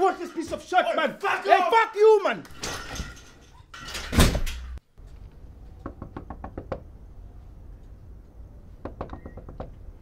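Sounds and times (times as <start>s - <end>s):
knocking on wooden door: 5.8s - 6.8s, 8.8s - 9.8s.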